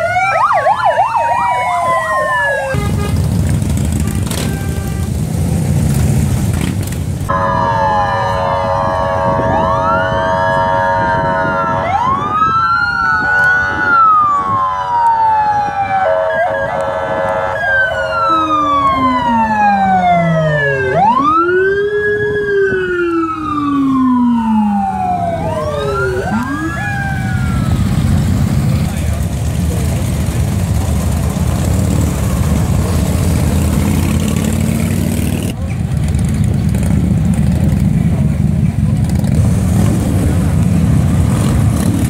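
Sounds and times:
police sirens wailing: 0:00.0 - 0:04.5, 0:07.2 - 0:35.3
motorcycle engines rumbling: 0:00.0 - 0:42.0.

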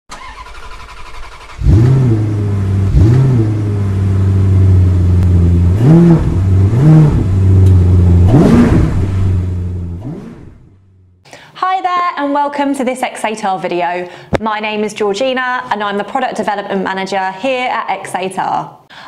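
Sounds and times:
car engine revving: 0:00.1 - 0:11.2.

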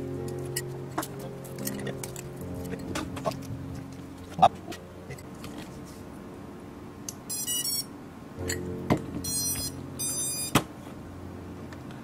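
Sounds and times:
high-pitched electronic beeps: 0:07.3 - 0:07.9, 0:09.2 - 0:10.6.

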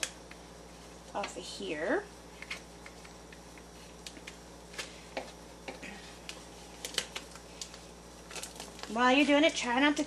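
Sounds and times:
plastic wrapper crinkling: 0:06.2 - 0:10.0.

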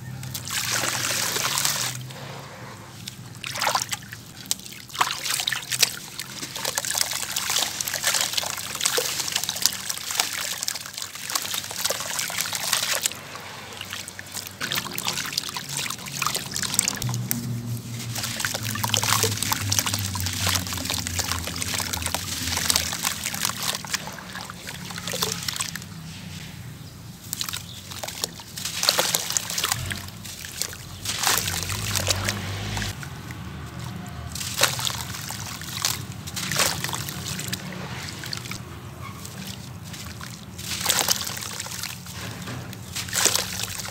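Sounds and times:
water trickling and splashing: 0:00.0 - 0:43.9
wet cement crunching by hand: 0:00.2 - 0:02.3, 0:02.9 - 0:26.0, 0:27.2 - 0:43.9.

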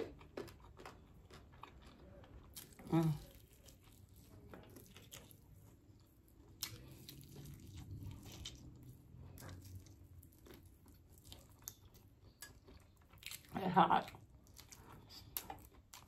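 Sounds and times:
chewing and crunching: 0:00.0 - 0:16.0.

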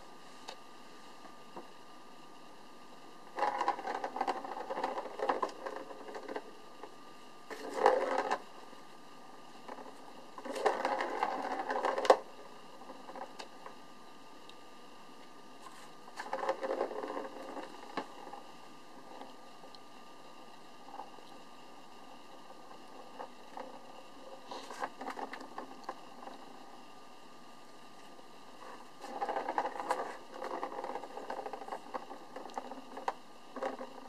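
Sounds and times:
plastic ball rattling in toy track: 0:03.3 - 0:06.4, 0:07.5 - 0:08.4, 0:16.2 - 0:18.4, 0:29.0 - 0:34.0.

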